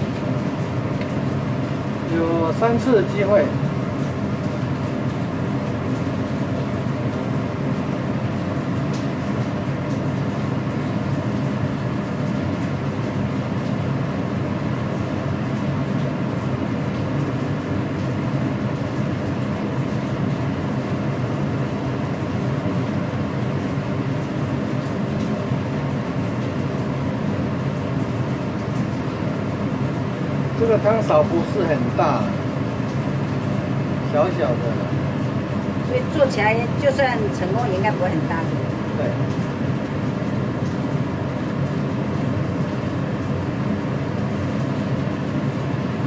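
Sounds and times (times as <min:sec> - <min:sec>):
gas burner hissing: 0:00.0 - 0:04.4.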